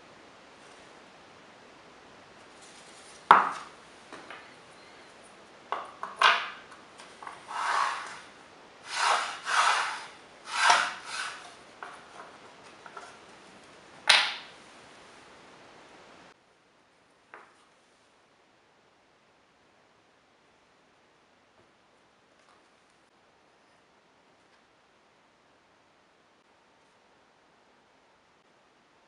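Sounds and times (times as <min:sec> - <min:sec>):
board scraping over board: 0:07.2 - 0:13.2.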